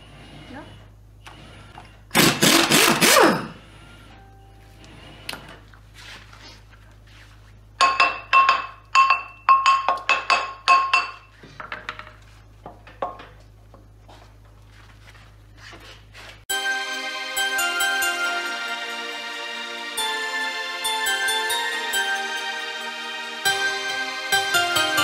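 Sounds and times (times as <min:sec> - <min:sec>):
background music: 0:16.5 - 0:25.0.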